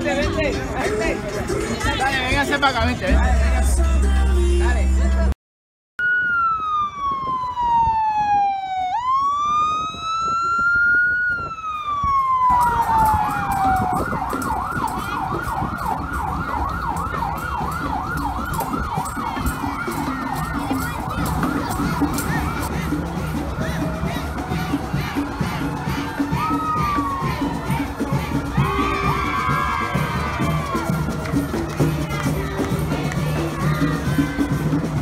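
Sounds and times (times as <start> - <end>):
street and crowd noise: 0.0 - 5.4, 6.0 - 35.0
emergency vehicle siren: 6.0 - 35.0.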